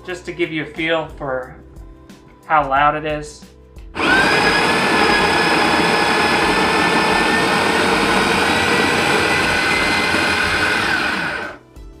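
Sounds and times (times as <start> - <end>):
coffee grinder motor whining: 4.0 - 11.6.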